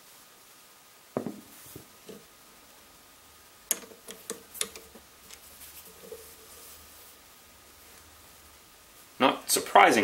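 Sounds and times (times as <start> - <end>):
metal knock: 1.2 - 1.4.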